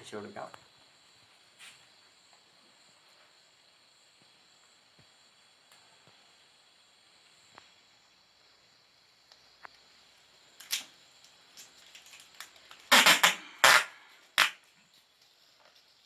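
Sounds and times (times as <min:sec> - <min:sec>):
tape pulled off roll: 0:10.6 - 0:14.8.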